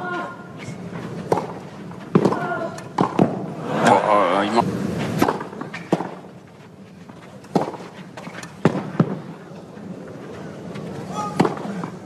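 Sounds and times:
faint crowd background: 0.0s - 12.0s
tennis ball pocks: 1.2s - 3.5s, 5.1s - 6.3s, 7.4s - 9.3s.

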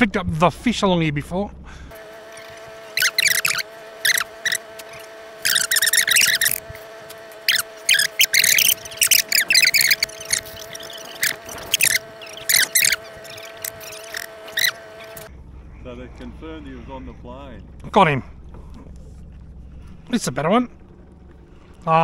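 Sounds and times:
boat motor humming: 0.0s - 22.0s
shrill squeaks and chirps: 2.2s - 6.7s, 7.4s - 15.3s.

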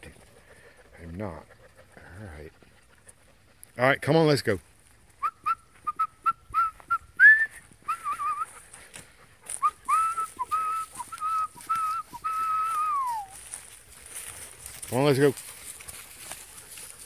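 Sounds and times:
person whistling: 5.2s - 8.6s, 9.6s - 13.4s.

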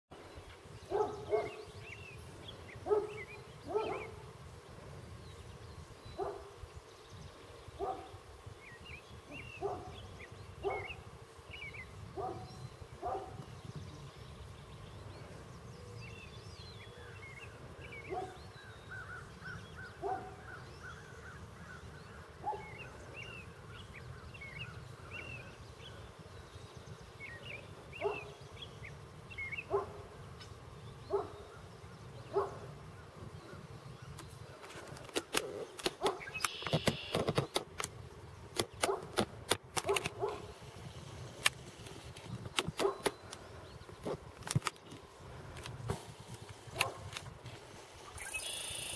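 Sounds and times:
birds chirping and trilling: 0.2s - 48.9s
sharp clicks and knocks: 34.2s - 40.4s, 41.4s - 43.4s
lower bird call: 35.5s - 37.5s, 47.8s - 48.9s.

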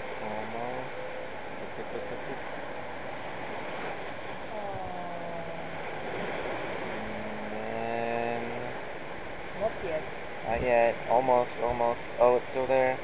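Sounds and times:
low droning tone: 0.0s - 9.7s
surf washing on a beach: 0.0s - 13.0s.

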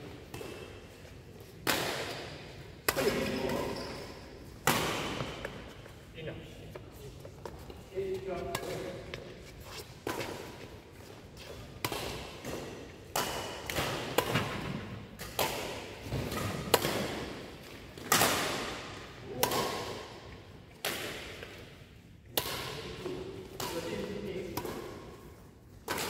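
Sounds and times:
rackets hitting shuttlecock: 0.1s - 3.8s, 4.5s - 5.7s, 8.2s - 9.4s, 11.4s - 26.0s.

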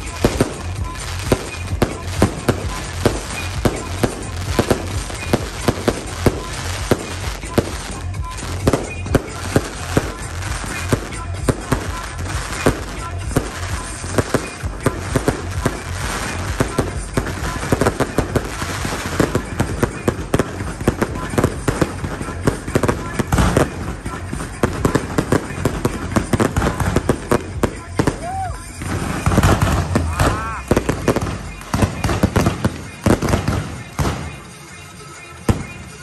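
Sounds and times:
fireworks banging: 0.0s - 36.0s
fireworks crackling: 0.0s - 36.0s.

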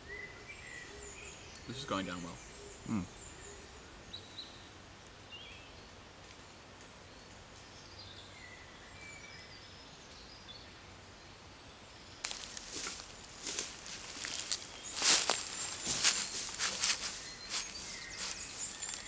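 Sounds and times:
birds chirping and whistling: 12.3s - 19.0s.

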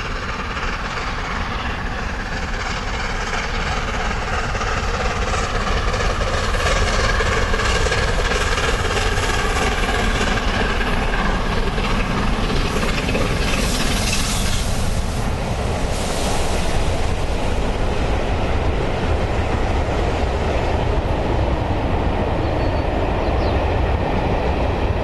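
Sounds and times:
wheels clattering on rail joints: 0.0s - 15.8s
steam locomotive exhaust beat: 0.0s - 25.0s.

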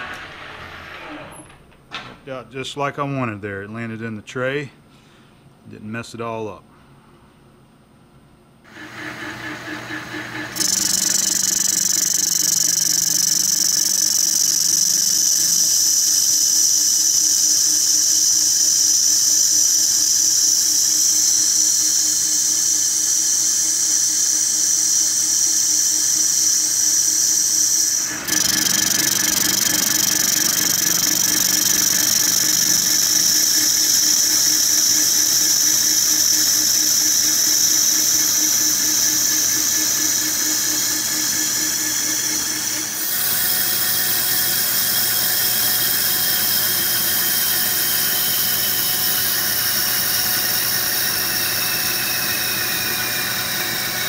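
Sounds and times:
lathe tool squealing: 8.7s - 16.8s, 26.8s - 54.0s
lathe spindle hum: 8.7s - 54.0s.

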